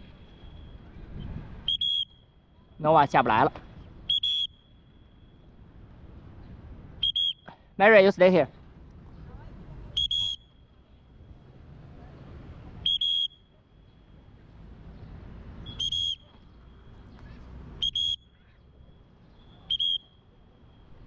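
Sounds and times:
low city rumble: 0:00.0 - 0:21.0.

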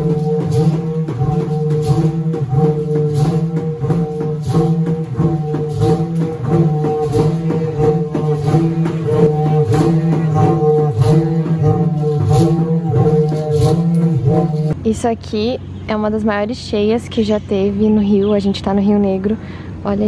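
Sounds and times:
wooden trumpets droning: 0:00.0 - 0:14.8.

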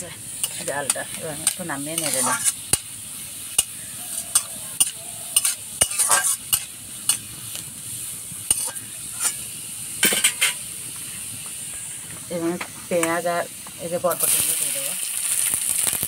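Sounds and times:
metal spatula scraping a wok: 0:00.0 - 0:10.6
garlic sizzling in hot oil: 0:00.0 - 0:16.0.

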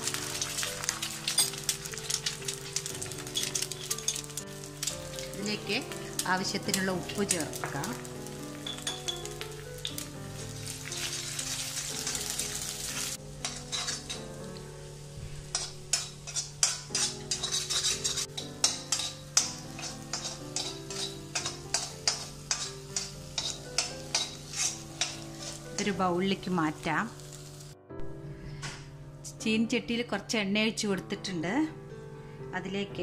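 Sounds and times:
eggs sizzling in oil: 0:00.0 - 0:27.8
spatula scraping pan: 0:11.0 - 0:14.2, 0:15.5 - 0:26.0.

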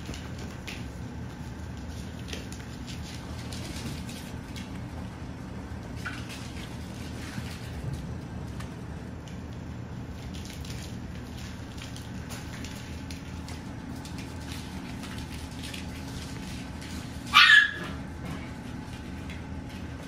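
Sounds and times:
steady low hum: 0:00.0 - 0:20.0
puppy yelping: 0:17.2 - 0:18.0.

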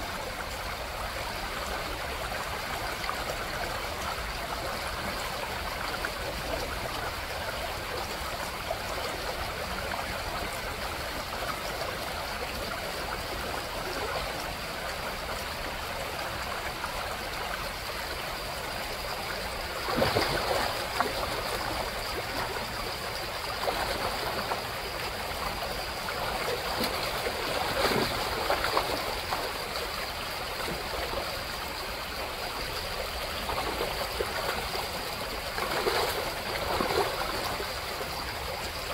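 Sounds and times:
creek running over gravel: 0:00.0 - 0:38.9
fish splashing in shallows: 0:19.7 - 0:29.7, 0:33.4 - 0:38.3.

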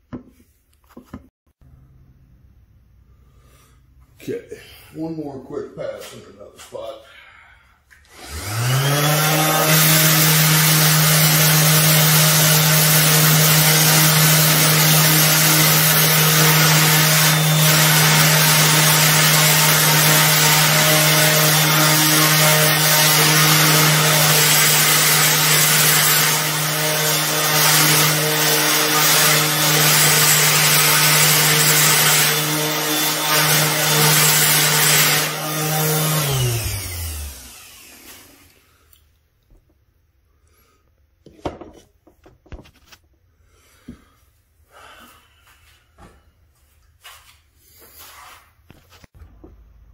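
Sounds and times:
electric polisher motor: 0:08.1 - 0:38.6.

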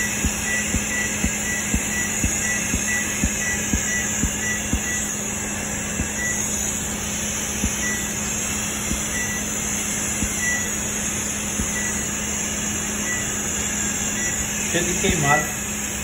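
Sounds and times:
short high beep: 0:00.0 - 0:05.1, 0:08.9 - 0:09.5
machine fan hum: 0:00.0 - 0:16.0.

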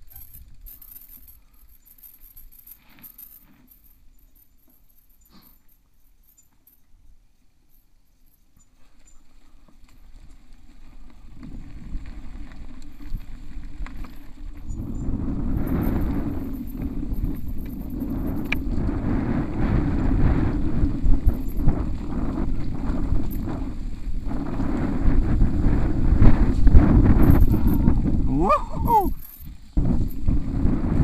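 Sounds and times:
bike rattling and clicking: 0:00.0 - 0:07.1, 0:07.7 - 0:31.0
tyres rolling on dirt: 0:08.2 - 0:31.0
wind buffeting microphone: 0:10.8 - 0:31.0.

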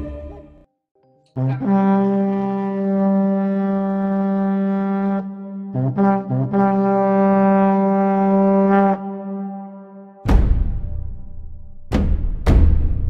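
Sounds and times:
brass horn notes: 0:01.4 - 0:10.2.

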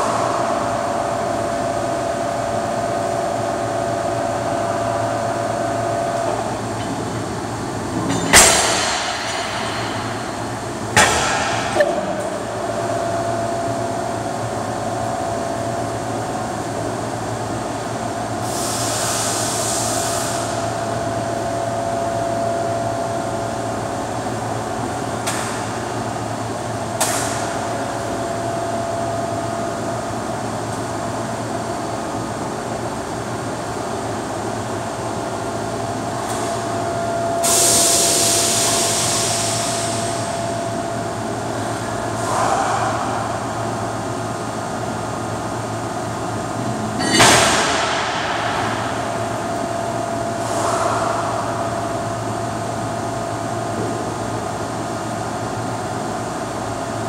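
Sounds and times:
workshop machinery hum: 0:00.0 - 0:57.0.

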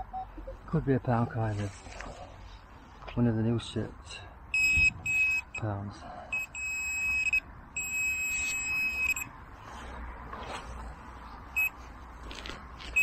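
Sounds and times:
short beep: 0:00.0 - 0:00.3, 0:04.6 - 0:05.6, 0:06.4 - 0:09.3
pinpointer high electronic tone: 0:00.0 - 0:00.6.

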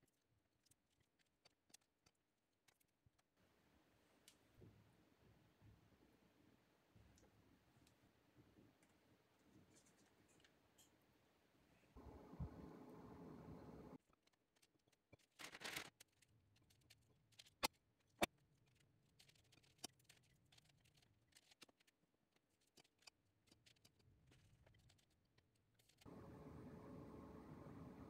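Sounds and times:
oven fan hum: 0:12.0 - 0:14.0, 0:26.1 - 0:28.0.

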